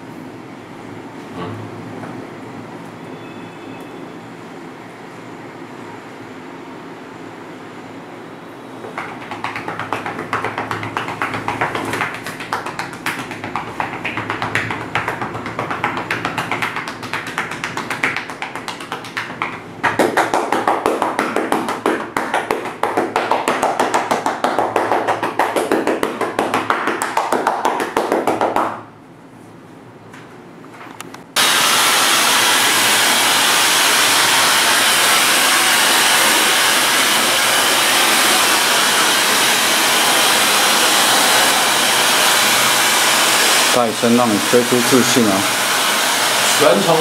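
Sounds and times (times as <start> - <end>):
hands slapping on back: 8.9 - 28.8.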